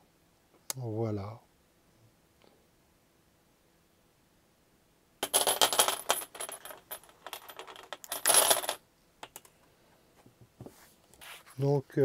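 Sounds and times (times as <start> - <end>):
steel chain clinking and rattling: 5.2 - 9.4.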